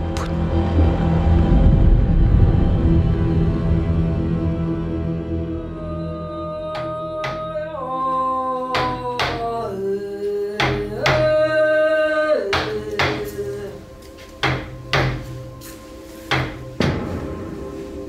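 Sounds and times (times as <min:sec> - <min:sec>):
sustained trailer music chords: 0:00.0 - 0:07.0, 0:14.7 - 0:18.0
sharp percussive hits: 0:16.3 - 0:18.0.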